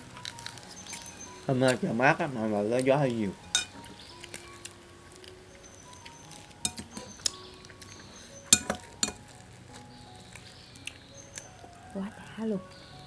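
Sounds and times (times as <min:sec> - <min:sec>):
spoon and shells clinking on plates: 0:03.5 - 0:03.9, 0:06.3 - 0:07.3, 0:08.5 - 0:09.4.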